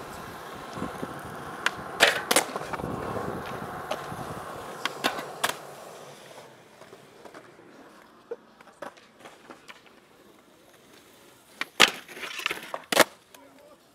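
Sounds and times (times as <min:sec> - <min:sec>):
skateboard wheels rolling on concrete: 0:00.0 - 0:13.9
skateboard clacks and knocks: 0:00.2 - 0:10.0.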